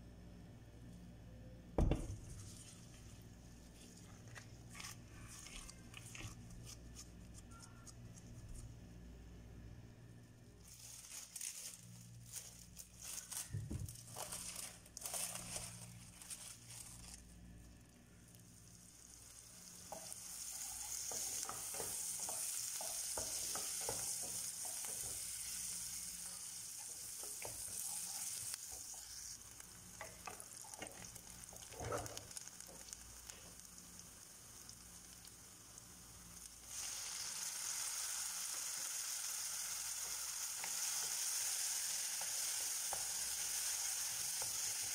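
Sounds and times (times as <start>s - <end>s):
wooden spoon stirring and scraping: 2.2s - 8.5s, 19.8s - 32.9s
onion sizzling in hot oil: 10.6s - 17.6s, 18.2s - 44.9s.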